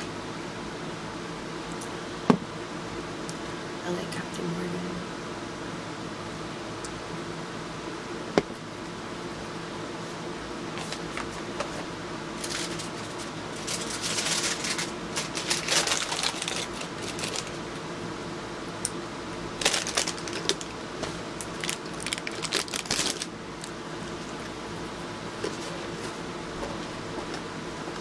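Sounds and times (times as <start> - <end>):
steady low hum: 0.0 - 28.0
rustling handling noise: 10.1 - 17.7, 19.6 - 27.5.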